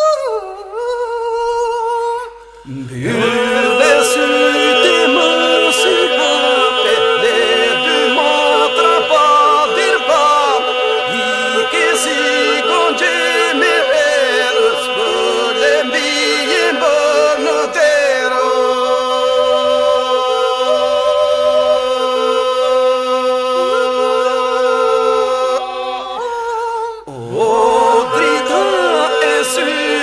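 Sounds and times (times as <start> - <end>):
lead voices singing ornamented lines: 0.0 - 30.0
group singing a drone: 2.7 - 30.0.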